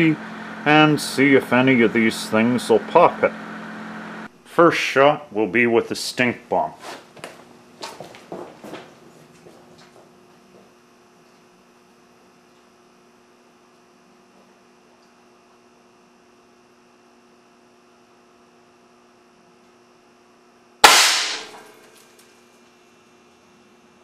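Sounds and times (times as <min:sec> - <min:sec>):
faint electrical hum: 0:00.0 - 0:24.0
air cannon blast: 0:20.8 - 0:21.7.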